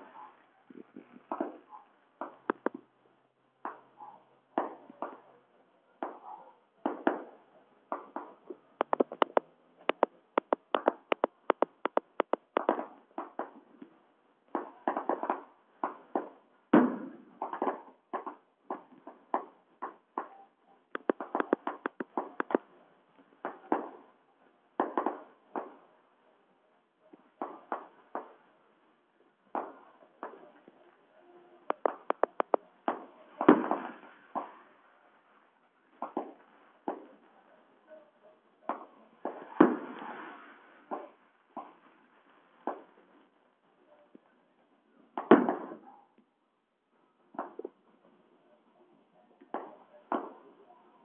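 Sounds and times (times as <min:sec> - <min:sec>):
fireworks bangs and pops: 0:00.0 - 0:02.9, 0:03.6 - 0:05.4, 0:06.0 - 0:26.0, 0:27.1 - 0:45.9, 0:47.3 - 0:48.2, 0:49.4 - 0:50.6
sharp firework cracks: 0:06.8 - 0:13.8, 0:14.5 - 0:20.3, 0:21.0 - 0:22.7, 0:23.4 - 0:24.1, 0:24.8 - 0:25.9, 0:31.7 - 0:34.7, 0:38.7 - 0:41.9, 0:42.6 - 0:43.0, 0:45.2 - 0:45.8.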